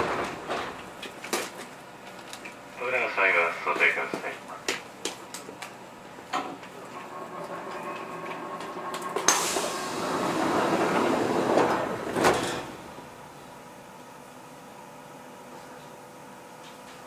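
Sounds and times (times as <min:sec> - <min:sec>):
train doors knocking shut: 0:00.0 - 0:01.6, 0:06.2 - 0:13.2
pneumatic door air rush: 0:09.2 - 0:12.9.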